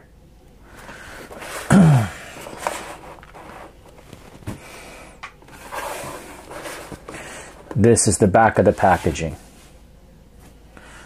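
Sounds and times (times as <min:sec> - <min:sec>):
box rustling: 0:02.3 - 0:04.7, 0:05.5 - 0:07.8.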